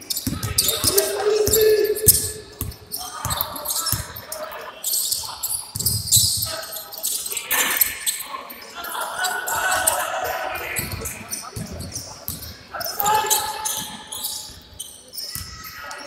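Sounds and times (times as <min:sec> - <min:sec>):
voices calling out: 0:00.0 - 0:05.7
shoes squeaking: 0:00.0 - 0:08.3.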